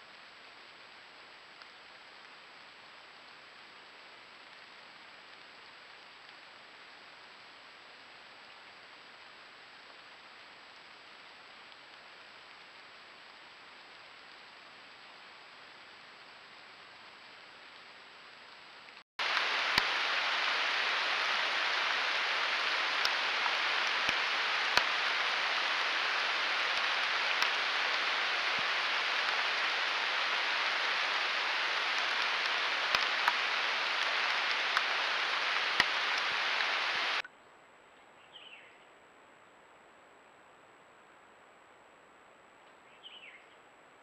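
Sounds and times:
hissing water with ticks: 0.0s - 37.3s
faint bird chirp: 37.3s - 38.9s, 42.7s - 43.7s.

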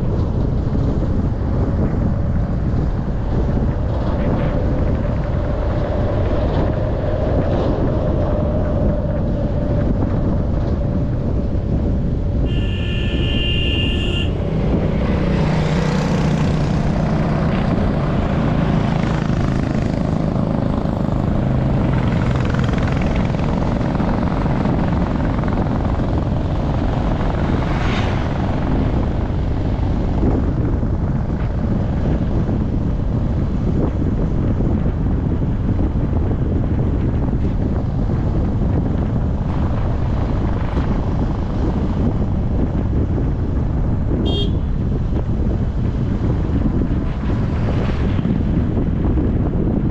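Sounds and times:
low engine hum: 0.0s - 49.9s
vehicle rumble on road: 0.0s - 49.9s
wind buffeting microphone: 0.0s - 49.9s
high steady tone: 12.5s - 14.5s.

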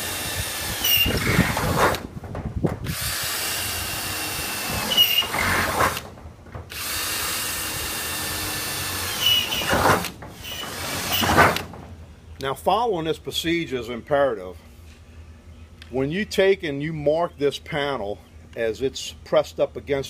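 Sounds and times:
drill bit squealing: 0.0s - 1.6s, 2.9s - 5.8s, 6.8s - 9.8s, 10.4s - 11.3s
cordless drill boring metal: 0.0s - 1.7s, 2.9s - 6.0s, 6.7s - 11.6s.

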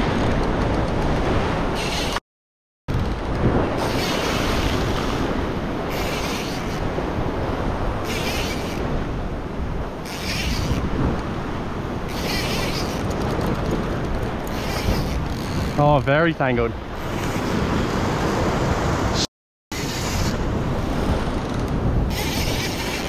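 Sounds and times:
wind buffeting microphone: 0.0s - 2.2s, 2.9s - 23.0s.

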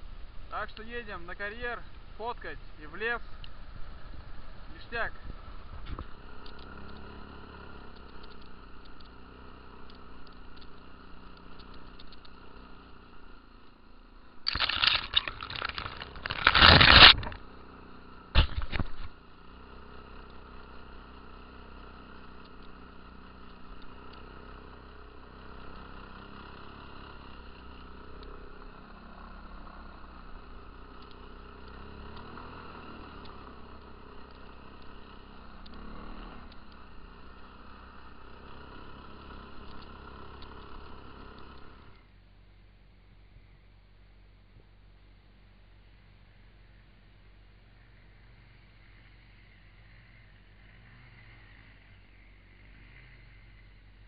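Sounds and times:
quad bike engine droning: 0.0s - 54.0s
loud scraping bursts: 14.5s - 17.4s.

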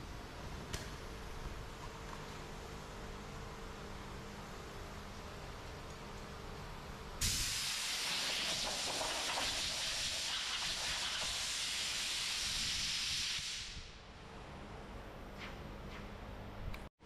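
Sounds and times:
compressed air hissing: 7.2s - 14.0s.

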